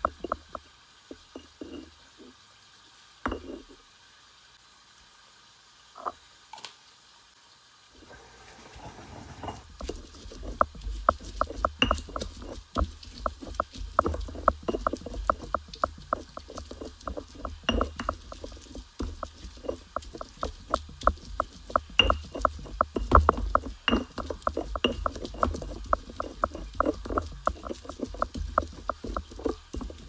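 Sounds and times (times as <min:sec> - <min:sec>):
stone pestle grinding and knocking: 0:00.0 - 0:01.9, 0:03.3 - 0:03.7, 0:09.3 - 0:30.0.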